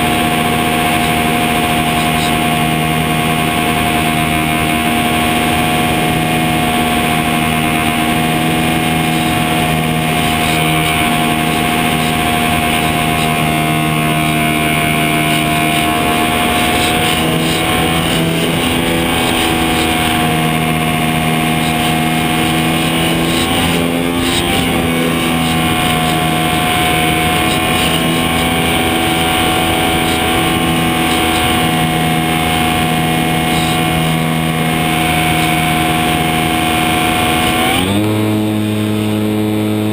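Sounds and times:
electric motor droning whine: 0.0s - 39.9s
rushing wind: 0.0s - 39.9s.

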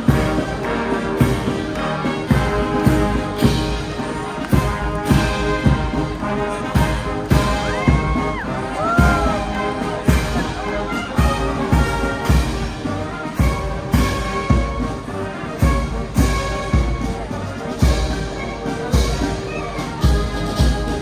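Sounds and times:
brass band playing a march: 0.0s - 21.0s
drum beat: 1.1s - 12.8s.

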